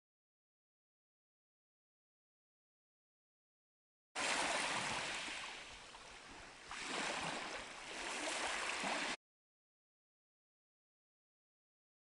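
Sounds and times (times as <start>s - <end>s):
waves washing onto sand: 4.2s - 9.2s.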